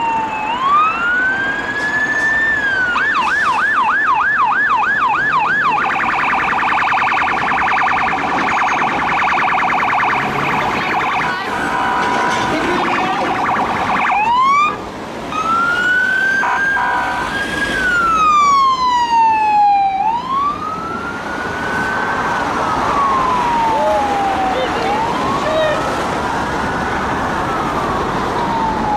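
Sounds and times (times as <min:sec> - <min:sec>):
police car siren: 0:00.0 - 0:28.9.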